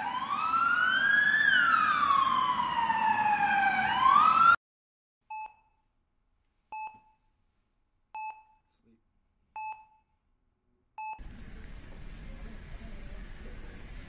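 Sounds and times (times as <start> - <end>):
siren wailing: 0.0 - 4.6
patient monitor beep: 5.3 - 5.8, 6.7 - 7.3, 8.2 - 8.7, 9.6 - 10.2, 11.0 - 11.3.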